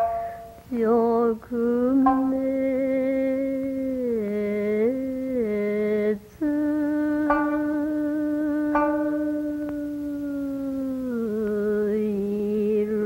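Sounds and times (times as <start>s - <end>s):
plucked string instrument: 0.0s - 0.7s, 1.9s - 3.0s, 7.1s - 10.0s.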